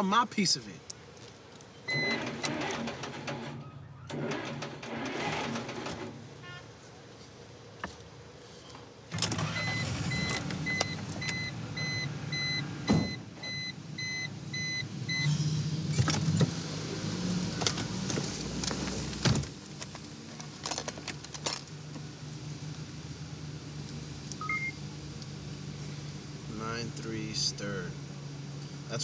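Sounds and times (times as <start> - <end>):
car warning chime beeping: 9.6 - 15.3, 24.4 - 24.8.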